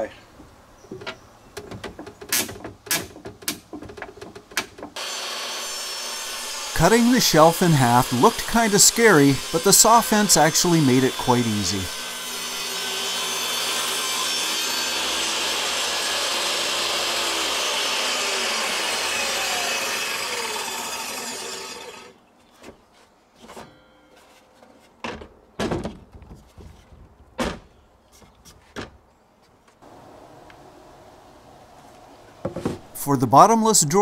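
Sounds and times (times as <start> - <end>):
wooden knocks: 0.9 - 5.0
table saw cutting plywood: 5.0 - 22.2.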